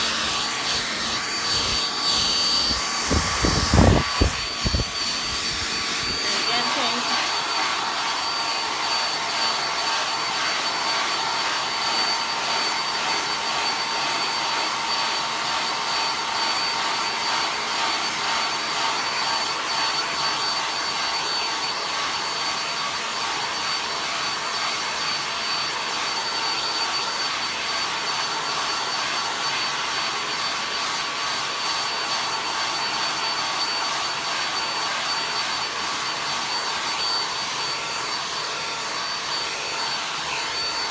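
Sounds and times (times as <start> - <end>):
hair dryer running: 0.0 - 40.9.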